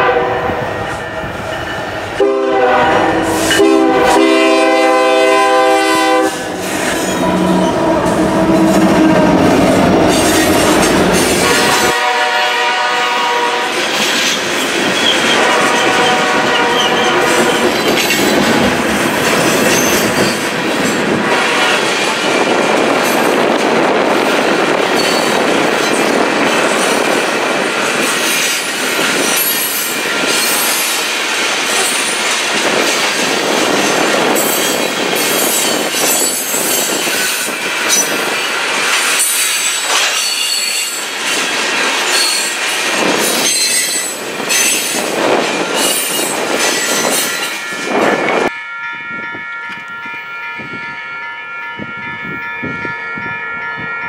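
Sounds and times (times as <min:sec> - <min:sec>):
crossing bell ringing: 0:00.6 - 0:23.4, 0:24.3 - 0:54.0
freight cars rumbling past: 0:05.5 - 0:11.9
wheels clattering on rails: 0:16.6 - 0:48.5.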